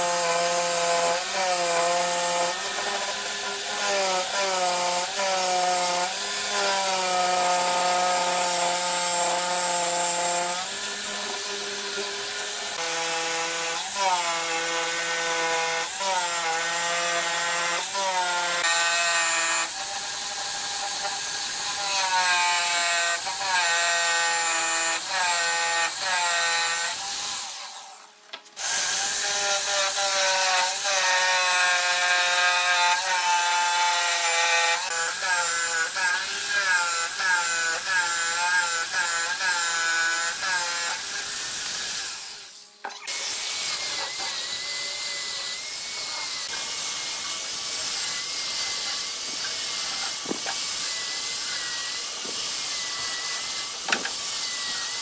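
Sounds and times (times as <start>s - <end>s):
angle grinder sanding wood: 0.0s - 55.0s
jigsaw cutting wood: 0.0s - 55.0s.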